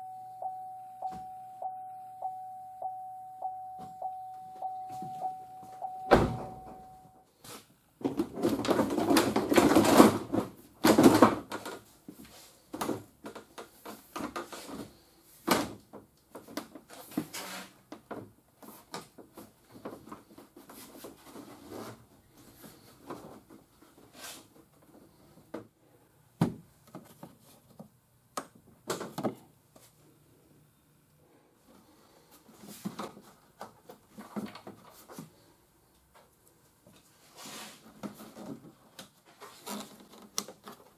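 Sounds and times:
plastic scraping: 0:37.4 - 0:40.9.

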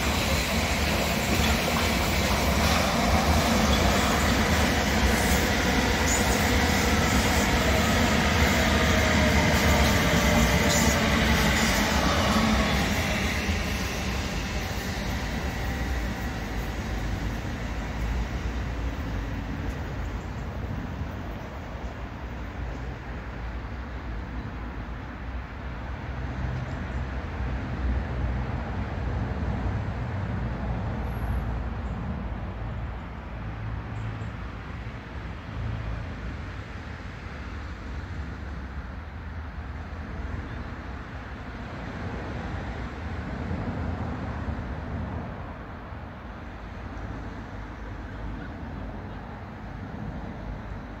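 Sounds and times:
steady rushing background: 0:00.0 - 0:21.9
diesel locomotive engine rumble: 0:00.0 - 0:51.0.

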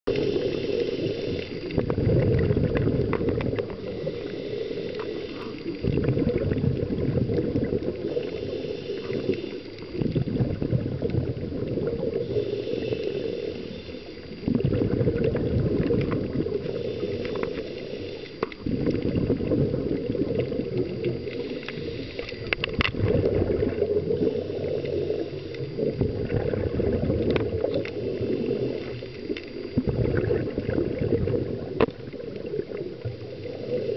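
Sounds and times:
hiss of inhaled breath: 0:00.1 - 0:01.8, 0:03.6 - 0:05.9, 0:07.9 - 0:10.3, 0:12.0 - 0:14.5, 0:16.2 - 0:18.7, 0:21.0 - 0:22.7, 0:24.1 - 0:26.0, 0:27.8 - 0:29.8, 0:32.7 - 0:33.9
exhaled bubbles gurgling: 0:00.1 - 0:33.9.

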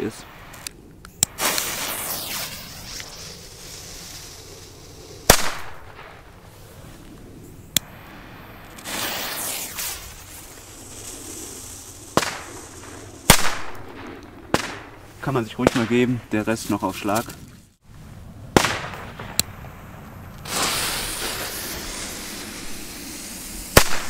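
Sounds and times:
firecrackers banging: 0:00.0 - 0:06.4, 0:07.8 - 0:16.3, 0:18.5 - 0:24.0.

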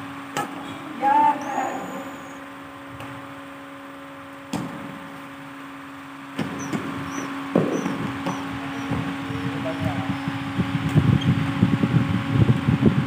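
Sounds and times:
steady hall hum: 0:00.0 - 0:13.0
shoes squeaking on court: 0:06.4 - 0:10.4.

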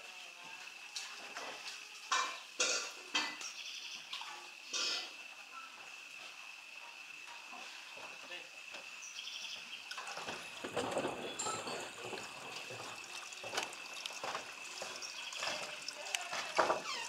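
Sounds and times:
high-pitched insect drone: 0:00.0 - 0:17.0
water sloshing and trickling: 0:09.8 - 0:17.0.

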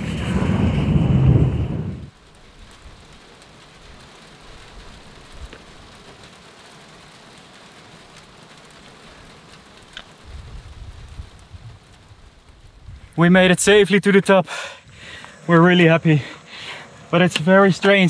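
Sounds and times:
low rumble: 0:00.0 - 0:02.8
light rain hissing: 0:00.0 - 0:18.0.

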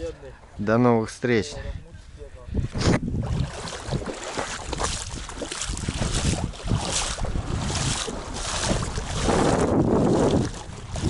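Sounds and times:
wind buffeting microphone: 0:01.4 - 0:11.0
rushing river water: 0:03.3 - 0:11.0.

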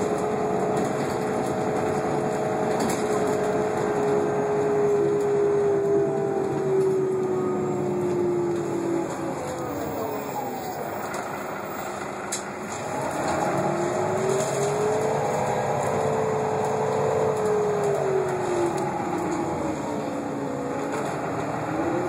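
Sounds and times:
bus drivetrain rumble: 0:00.0 - 0:22.0
transmission whine: 0:02.8 - 0:22.0.

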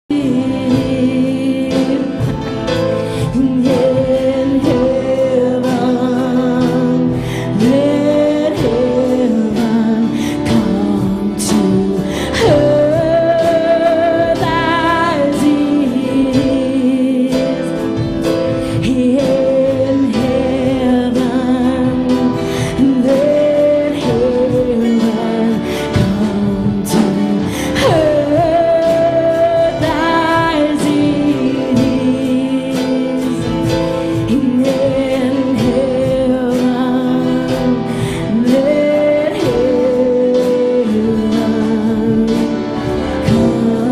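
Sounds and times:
person singing with vibrato: 0:00.0 - 0:43.9
worship band playing slow song: 0:00.0 - 0:43.9
drum and cymbal hits: 0:00.1 - 0:43.9.

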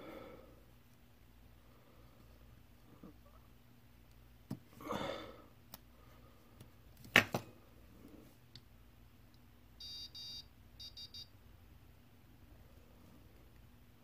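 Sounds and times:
morse code beeps: 0:09.8 - 0:11.3.

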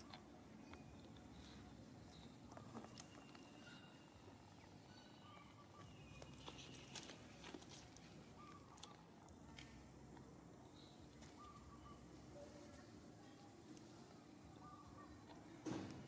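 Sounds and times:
faint high chirps: 0:00.0 - 0:07.2, 0:10.6 - 0:15.5.

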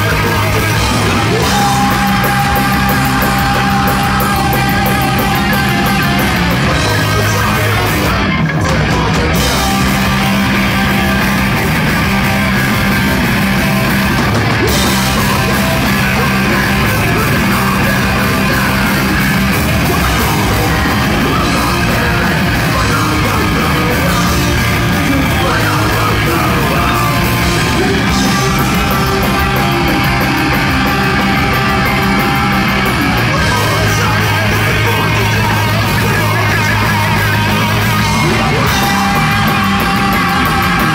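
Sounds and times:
person shouting lead vocal: 0:00.0 - 0:11.3, 0:14.6 - 0:40.9
distorted electric guitars: 0:00.0 - 0:40.9
drums: 0:00.0 - 0:40.9.

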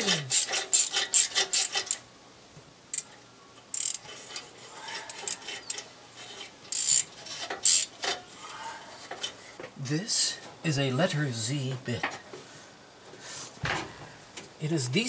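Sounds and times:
metal tools scraping: 0:00.0 - 0:02.0, 0:03.7 - 0:09.6.

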